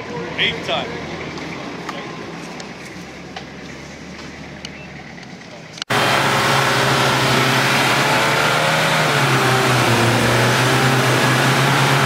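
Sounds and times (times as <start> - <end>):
vehicle engine droning: 0.0 - 12.0
higher wavering engine notes: 5.9 - 12.0.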